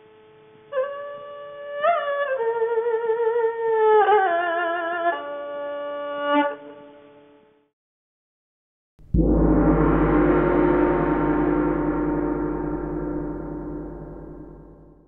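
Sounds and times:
gong ringing: 9.0 - 15.0
deep low rumble: 9.1 - 15.0.

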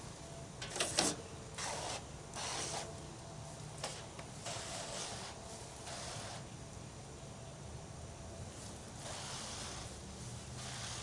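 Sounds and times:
sprayer wand hissing: 0.7 - 3.0, 3.8 - 6.6, 8.6 - 11.0.

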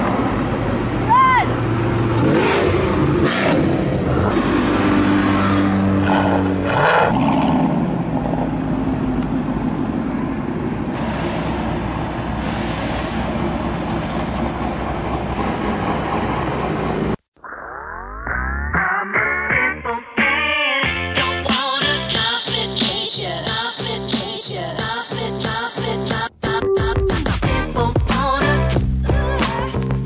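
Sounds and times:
cars driving past: 0.0 - 17.2
road noise: 0.0 - 17.4.

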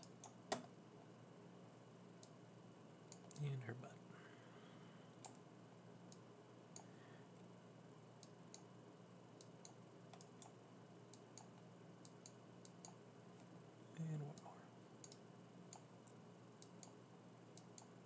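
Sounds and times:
computer mouse clicking: 0.0 - 0.7, 5.2 - 5.4, 6.1 - 6.9, 9.4 - 13.0, 14.3 - 18.0.

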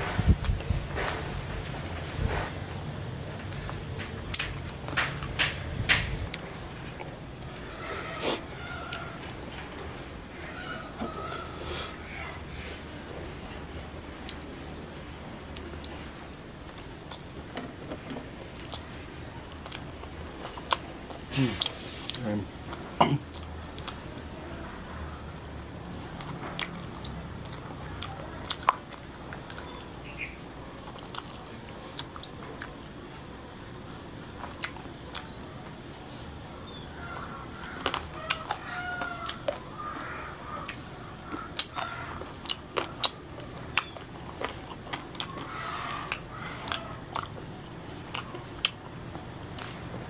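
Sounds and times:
wet chewing: 13.8 - 14.8, 15.4 - 25.1, 25.9 - 50.0
lip smacks: 40.6 - 50.0.

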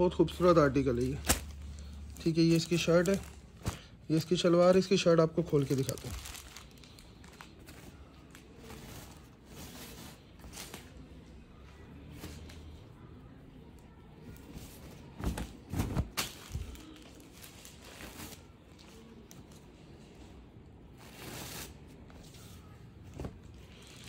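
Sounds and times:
cloth rustling: 0.4 - 4.5, 14.4 - 18.6.

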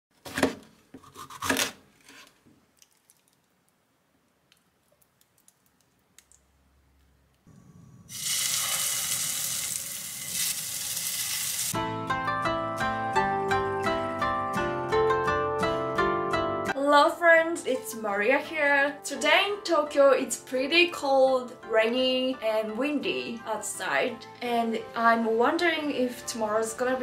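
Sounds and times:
food sizzling in a frying pan: 8.1 - 11.8.

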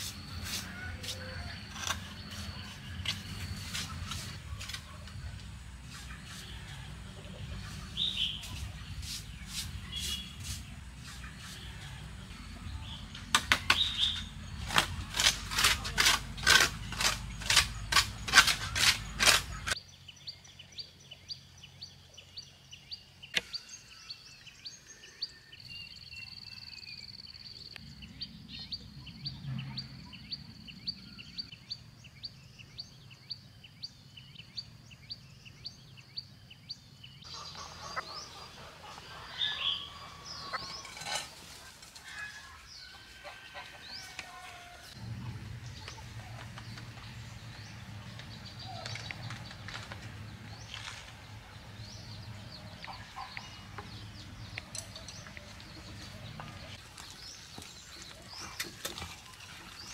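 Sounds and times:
broom sweeping dirt floor: 0.0 - 12.7, 37.2 - 43.2
birds chirping: 0.0 - 59.9.

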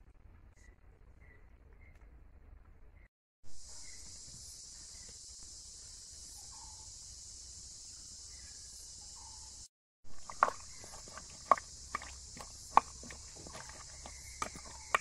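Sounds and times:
faint bird chirps: 0.5 - 2.2, 2.9 - 7.2, 7.8 - 9.7
insect chorus drone: 3.5 - 15.0.

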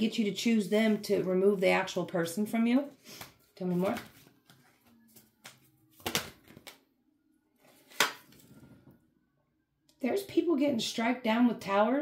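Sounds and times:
cards shuffling: 3.0 - 6.8, 7.6 - 8.4.

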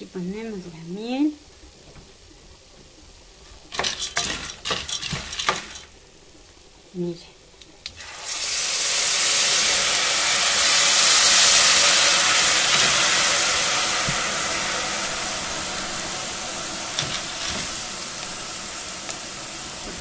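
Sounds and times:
syrup sizzling in a pan: 3.6 - 6.3, 7.8 - 20.0
wooden spoon knocking a pan: 3.7 - 5.8.

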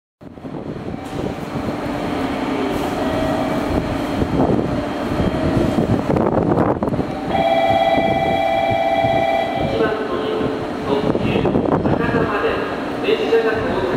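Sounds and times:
diesel railcar engine rumble: 0.2 - 13.9.

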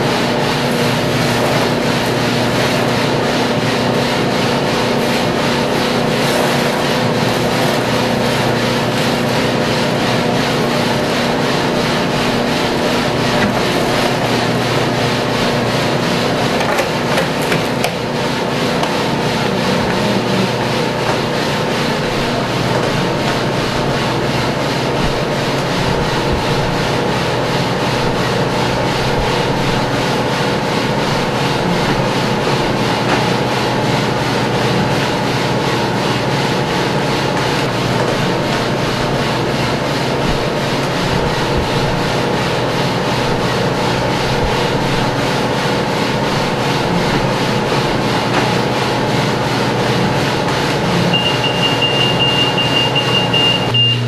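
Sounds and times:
beans scraping in roaster tray: 0.0 - 35.3
roaster machine hum: 0.0 - 54.0.

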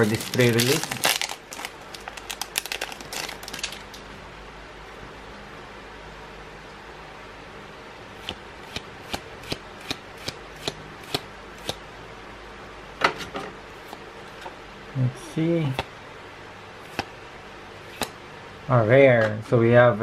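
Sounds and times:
cards snapping while flipped: 8.2 - 11.8, 13.8 - 14.0, 16.9 - 17.1, 17.8 - 18.2.

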